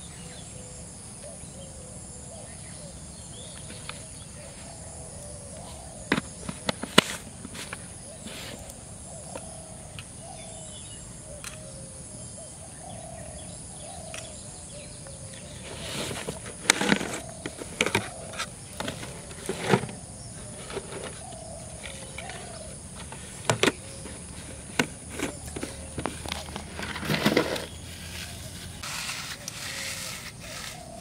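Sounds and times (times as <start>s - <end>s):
faint bird calls: 0.0s - 31.0s
plastic jar and steel plate clattering: 6.0s - 7.8s, 15.6s - 28.5s.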